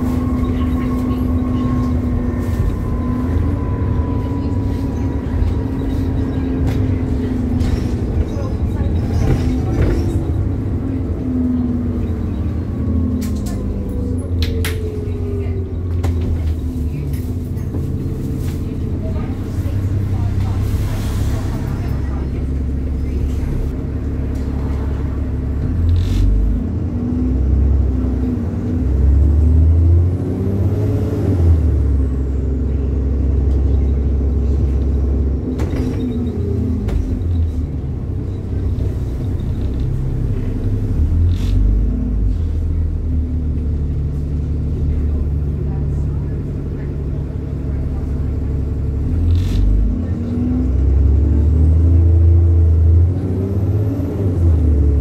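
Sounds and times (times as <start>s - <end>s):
bus diesel engine accelerating: 0.0s - 55.0s.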